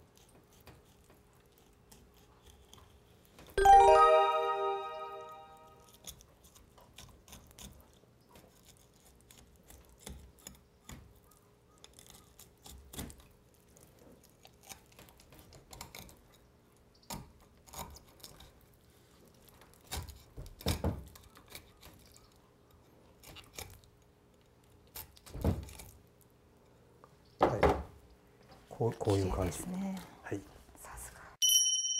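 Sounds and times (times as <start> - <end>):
knife crunching through fish bones: 23.2 - 23.9.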